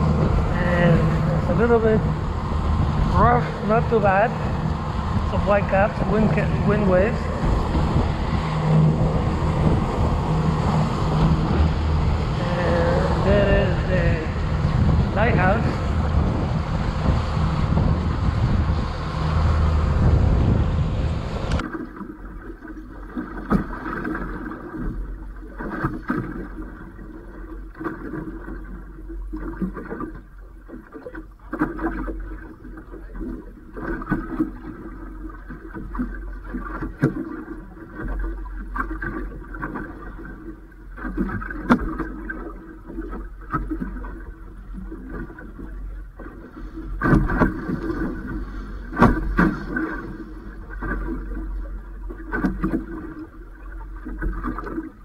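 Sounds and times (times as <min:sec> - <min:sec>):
knocks and splashes: 0:00.0 - 0:55.0
steady low hum: 0:00.0 - 0:55.0
water lapping against boat hull: 0:00.0 - 0:55.0.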